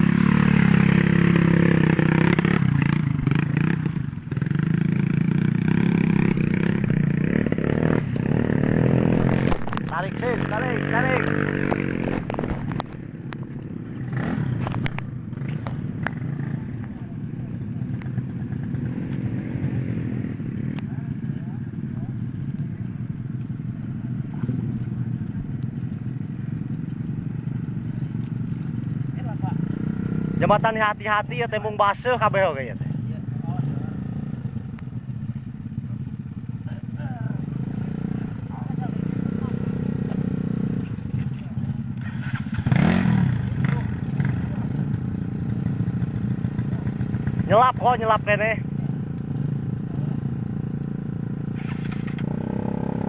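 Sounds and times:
small motorcycle engine running: 0.0 - 53.0.

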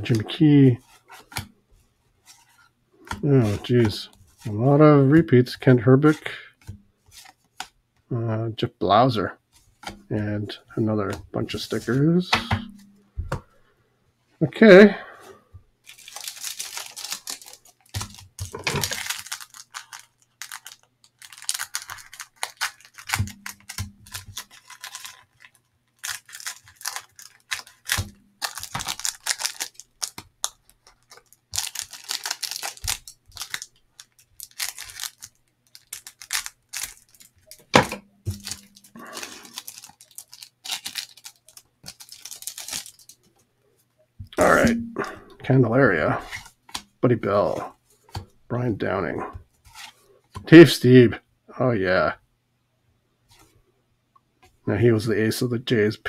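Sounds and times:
cellophane wrapper crinkling: 15.8 - 43.4.

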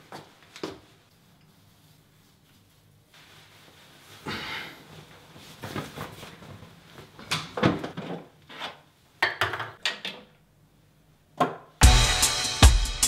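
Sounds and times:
clothing rustling: 0.0 - 7.3.

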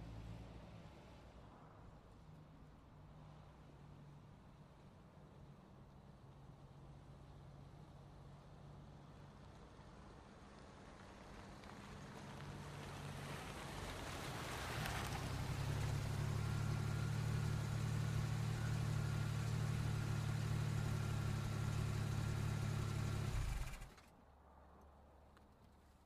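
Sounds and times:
car engine running: 15.5 - 24.0.

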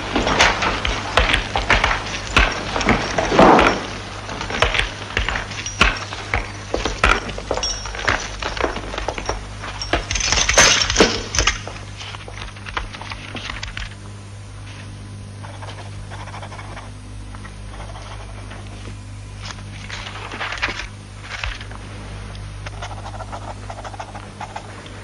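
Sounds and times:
shackle chains clinking: 0.0 - 12.0
footsteps: 0.0 - 13.8
steady low hum: 0.0 - 25.0.

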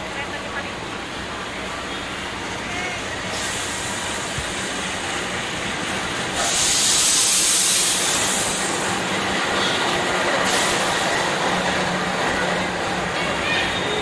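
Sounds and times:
locomotive engine humming: 0.0 - 14.0
loud hiss of air: 3.2 - 5.2, 6.2 - 9.0, 10.4 - 11.3.

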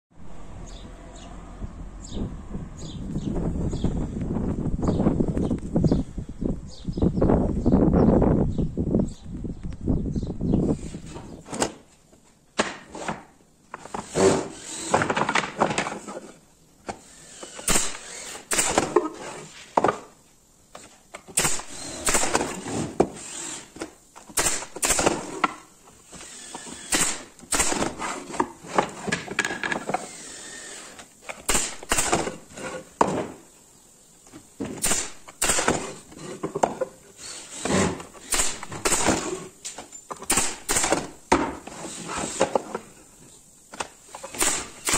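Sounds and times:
boards scraping: 10.6 - 21.1, 21.8 - 24.3, 27.6 - 33.6, 34.3 - 43.1
wooden boards knocking together: 12.6 - 13.3, 14.2 - 16.2, 27.6 - 30.0, 33.0 - 33.4, 40.1 - 41.7
nail gun firing: 14.0 - 15.9, 17.4 - 19.1, 21.3 - 25.6, 26.2 - 28.0, 30.0 - 32.4, 34.7 - 36.0, 37.4 - 39.4, 40.2 - 41.6, 44.2 - 44.9.

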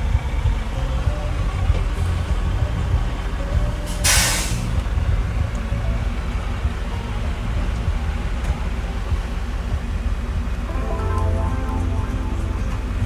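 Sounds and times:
diesel engine idling: 0.0 - 13.0
brief hiss: 4.0 - 4.7.

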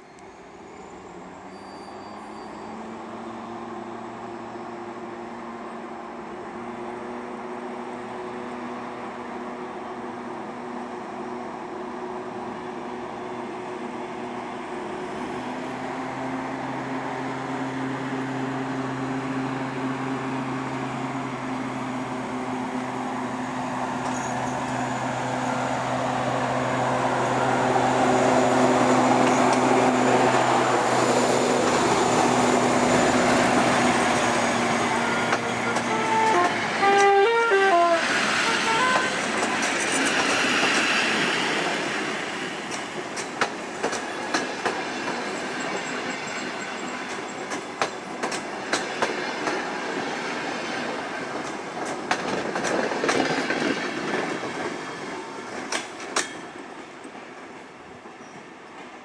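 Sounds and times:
diesel locomotive engine: 0.0 - 59.0
train wheels clicking: 28.2 - 37.2, 38.0 - 59.0
locomotive horn toots: 34.8 - 39.2.

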